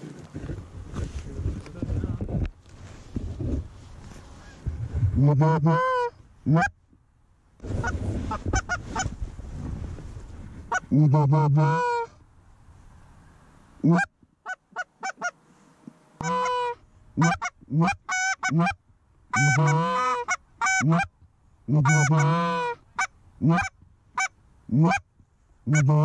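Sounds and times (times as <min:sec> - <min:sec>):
goose call clucks and honks: 0:05.2 - 0:06.7, 0:07.8 - 0:09.1, 0:10.7 - 0:12.1, 0:13.8 - 0:15.4, 0:16.2 - 0:21.1, 0:21.7 - 0:25.1, 0:25.7 - 0:26.0.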